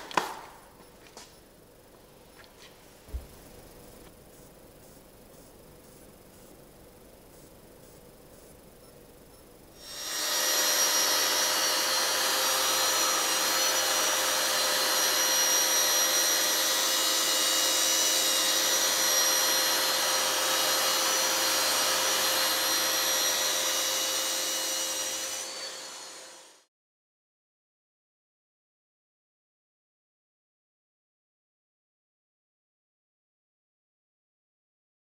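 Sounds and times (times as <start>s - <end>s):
power tool motor whining: 9.8s - 26.7s.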